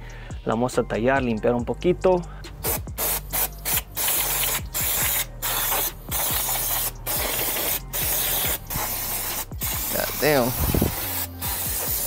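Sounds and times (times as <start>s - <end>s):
aerosol can spraying: 2.6s - 12.0s.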